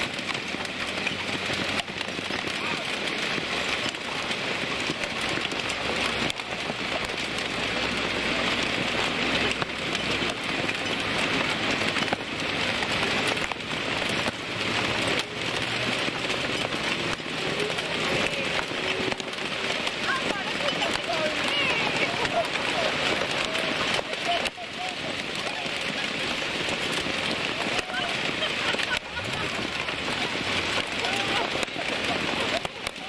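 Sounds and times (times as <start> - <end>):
torrential rain and wind: 0.0 - 33.0.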